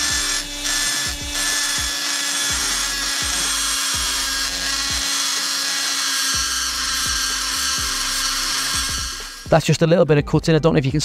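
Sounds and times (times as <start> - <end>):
die grinder grinding metal: 0.0 - 9.6.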